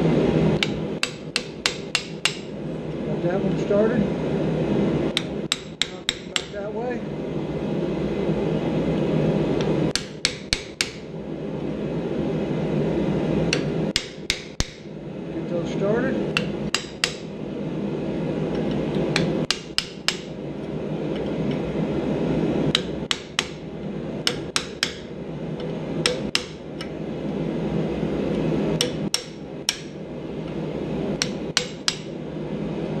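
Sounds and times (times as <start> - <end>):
steady low rumble: 0.0 - 33.0
hammer striking chisel on steel: 0.6 - 2.5, 5.2 - 6.6, 9.9 - 11.0, 13.5 - 14.9, 16.4 - 17.3, 19.2 - 20.3, 22.7 - 23.6, 24.2 - 25.1, 26.0 - 26.9, 28.8 - 30.0, 31.2 - 32.1.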